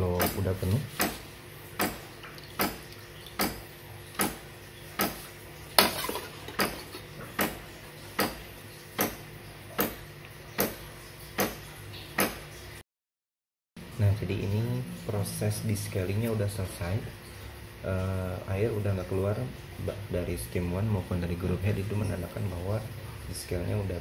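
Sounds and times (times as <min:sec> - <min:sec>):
steady low hum: 0:13.8 - 0:24.0.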